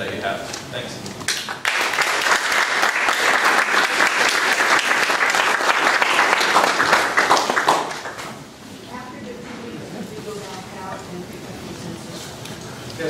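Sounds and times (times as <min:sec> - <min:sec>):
audience applauding: 0:01.3 - 0:08.4.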